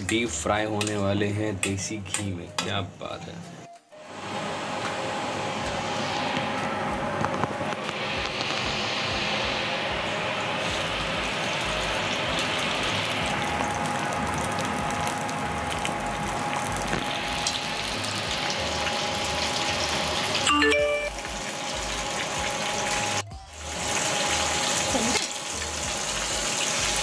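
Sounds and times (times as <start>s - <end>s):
hot fat sizzling: 7.8s - 27.0s
chime-like jingle: 20.5s - 21.2s.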